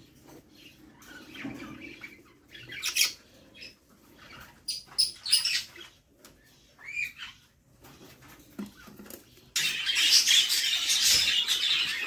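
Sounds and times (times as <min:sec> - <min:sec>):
bird chicks squeaking and chirping: 0:00.0 - 0:12.0.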